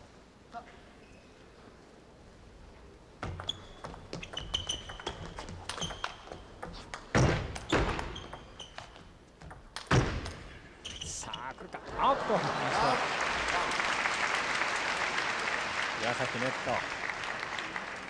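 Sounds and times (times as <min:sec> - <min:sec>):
table tennis ball clicking: 0:03.8 - 0:09.9.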